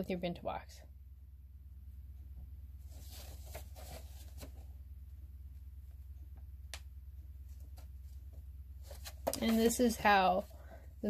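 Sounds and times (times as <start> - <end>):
steady low hum: 0.0 - 11.0
paper leaflet rustling: 2.9 - 4.7.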